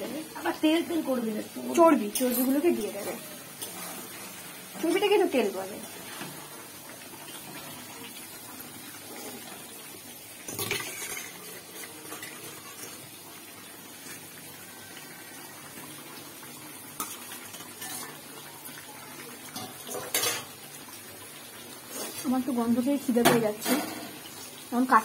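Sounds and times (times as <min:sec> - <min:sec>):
food cooking hiss: 0:00.0 - 0:25.0
spoon clinking against metal pans: 0:02.0 - 0:03.8, 0:17.0 - 0:18.2, 0:19.5 - 0:20.5, 0:23.2 - 0:24.1.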